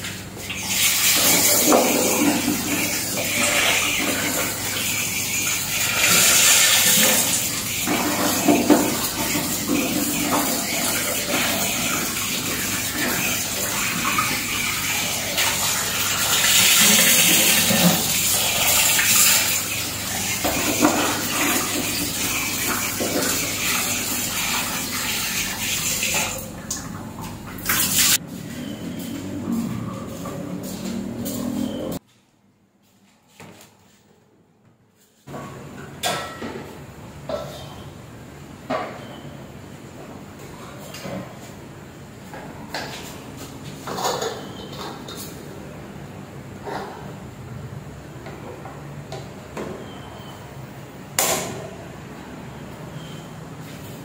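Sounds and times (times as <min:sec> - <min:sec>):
tap water running into basin: 0:00.0 - 0:28.2.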